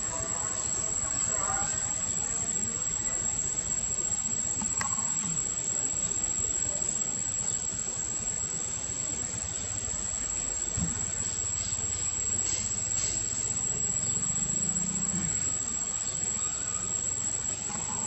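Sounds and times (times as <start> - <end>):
steady background hiss: 0.0 - 18.0
faint chirp: 9.0 - 18.0.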